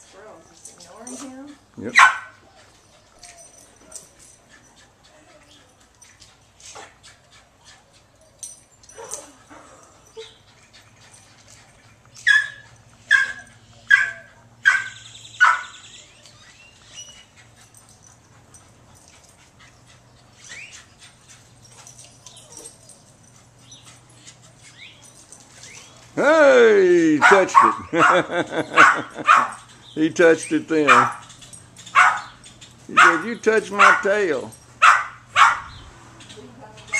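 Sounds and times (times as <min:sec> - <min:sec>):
dog barking: 0:01.9 - 0:02.4, 0:12.3 - 0:15.8, 0:27.2 - 0:29.6, 0:30.9 - 0:31.2, 0:31.9 - 0:32.3, 0:33.0 - 0:34.2, 0:34.8 - 0:35.7.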